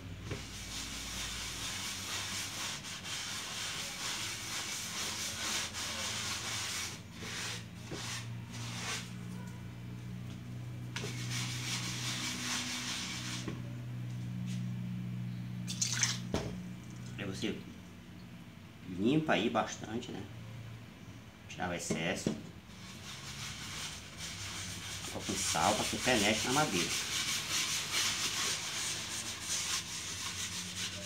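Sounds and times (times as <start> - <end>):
cloth rag scrubbing wet board: 0.3 - 9.5, 11.0 - 13.6, 22.7 - 31.0.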